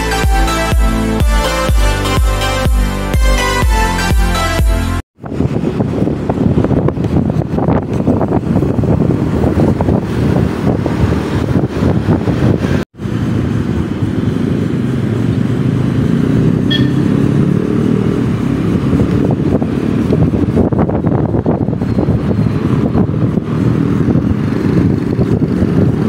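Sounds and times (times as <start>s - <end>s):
motorcycle engine running: 5.2s - 26.0s
wind rushing over microphone: 5.2s - 26.0s.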